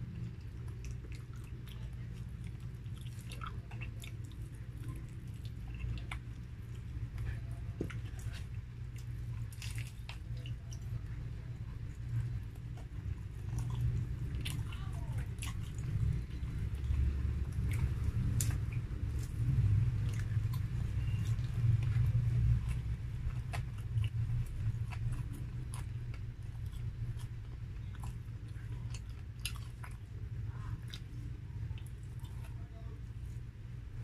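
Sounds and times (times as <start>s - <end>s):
chewing and biting food: 0.0s - 34.0s.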